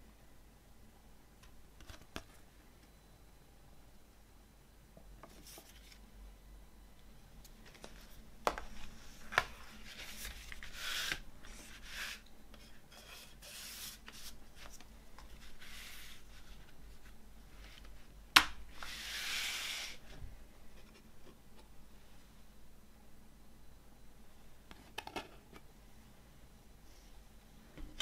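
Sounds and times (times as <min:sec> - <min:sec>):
cardboard sliding and rubbing: 0:08.8 - 0:12.2, 0:13.0 - 0:16.8, 0:18.7 - 0:20.0.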